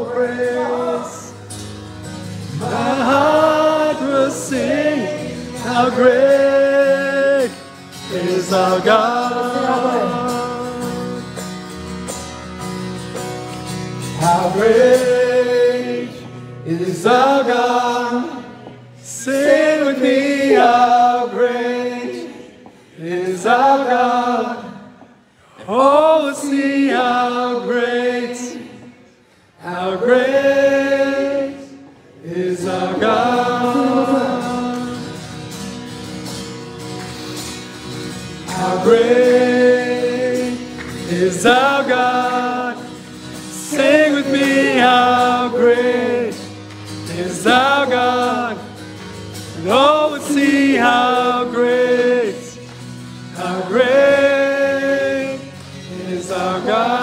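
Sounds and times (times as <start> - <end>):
man singing: 0.0 - 1.5, 2.5 - 11.5, 14.1 - 25.0, 29.6 - 35.4, 38.4 - 48.8, 49.5 - 52.6, 53.4 - 57.0
acoustic guitar: 0.0 - 57.0.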